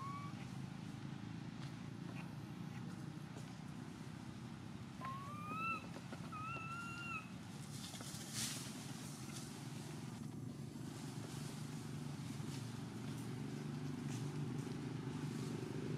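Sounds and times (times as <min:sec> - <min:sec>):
monkey coo calls: 0:00.0 - 0:00.6, 0:05.0 - 0:07.4
low steady rumble: 0:00.0 - 0:15.9
dry leaves rustling: 0:06.8 - 0:15.9.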